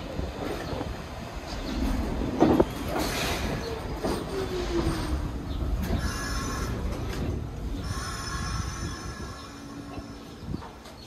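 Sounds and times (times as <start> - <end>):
subway train rumbling on tracks: 0.0 - 11.0
wheels squealing on rail: 2.6 - 10.8.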